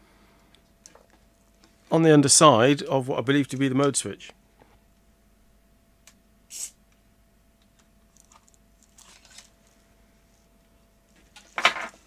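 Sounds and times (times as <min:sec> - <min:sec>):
aerosol spray hiss: 0:06.5 - 0:06.8.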